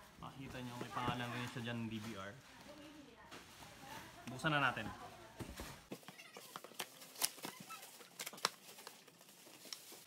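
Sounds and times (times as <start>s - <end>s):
cardboard rustling and scraping: 5.4s - 10.0s.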